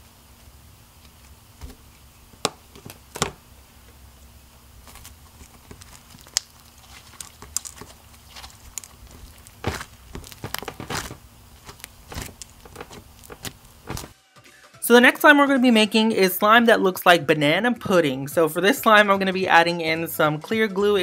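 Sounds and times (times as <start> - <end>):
faint steady hum: 0.0 - 14.2
slime clicking and popping: 4.9 - 14.0.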